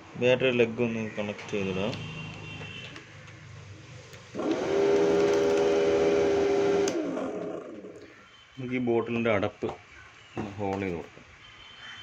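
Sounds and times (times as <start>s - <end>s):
electric motor humming: 4.3s - 7.9s.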